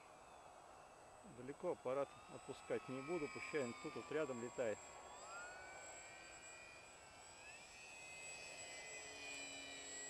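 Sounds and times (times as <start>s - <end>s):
model plane motor whine: 0.0s - 10.0s.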